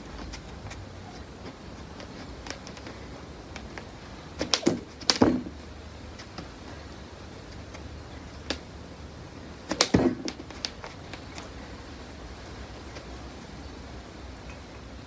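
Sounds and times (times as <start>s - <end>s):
jump rope slapping wet mat: 4.4s - 5.6s, 9.7s - 11.0s.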